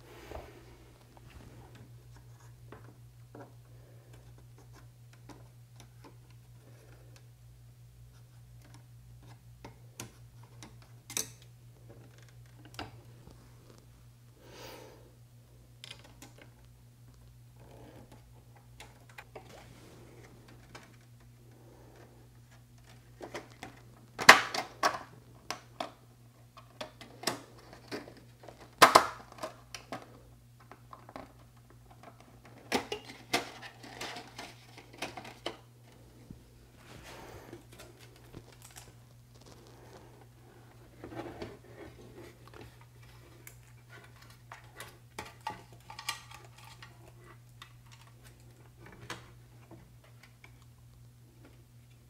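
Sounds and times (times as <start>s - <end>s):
steady low hum: 0.0s - 28.7s, 29.3s - 52.0s.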